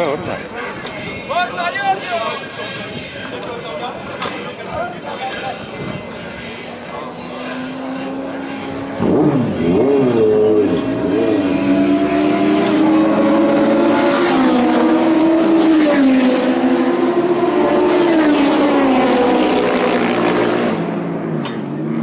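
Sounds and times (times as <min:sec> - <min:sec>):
racing motorcycle engines revving: 0:05.5 - 0:22.0.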